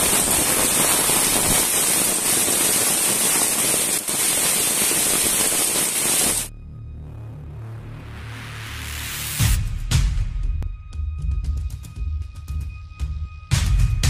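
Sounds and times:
heavy rain pouring: 0:00.0 - 0:06.5.

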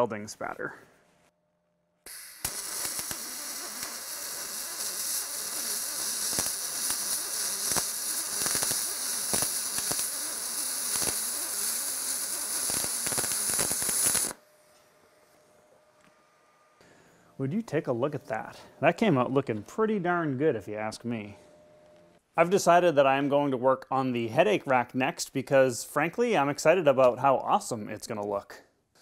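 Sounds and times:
welding arc crackling hiss: 0:02.1 - 0:14.4.

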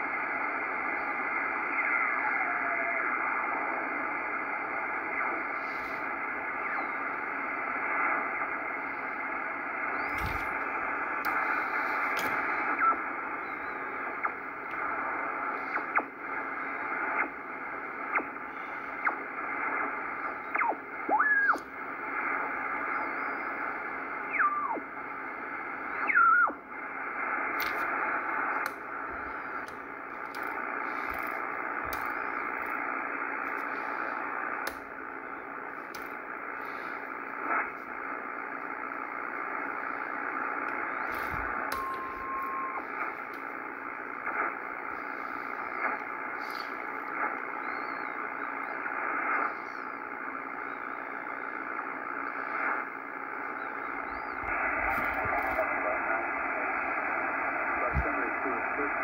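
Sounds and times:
radio band hiss: 0:00.0 - 0:59.0
sliding radio whistles: 0:00.0 - 0:59.0
sharp clicks: 0:09.9 - 0:22.8, 0:27.3 - 0:47.6.

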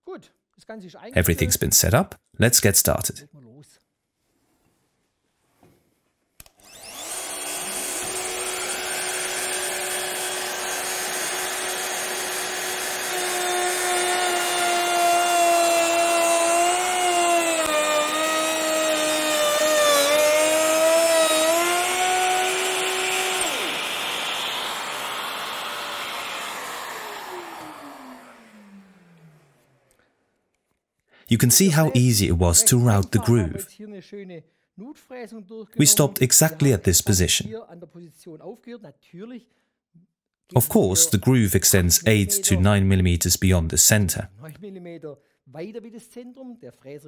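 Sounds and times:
router whining: 0:06.4 - 0:29.9
router cutting wood: 0:06.5 - 0:29.8, 0:31.4 - 0:33.6, 0:35.8 - 0:37.5, 0:40.6 - 0:44.2.

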